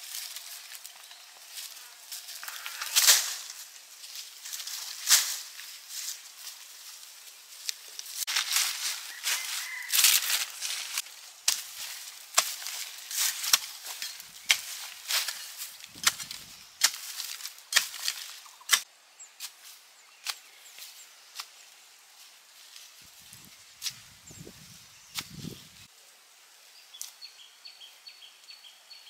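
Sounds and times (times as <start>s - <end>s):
hand tool chopping: 11.5s - 18.9s.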